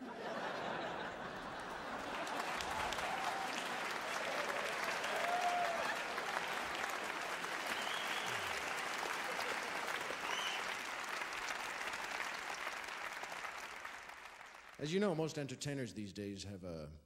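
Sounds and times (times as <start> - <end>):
audience applauding: 0.0 - 14.9.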